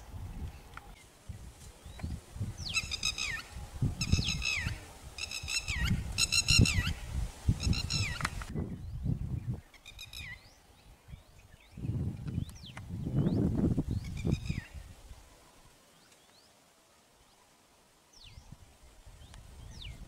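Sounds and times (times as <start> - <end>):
bird shrill calls: 2.6 - 7.0, 7.6 - 8.3.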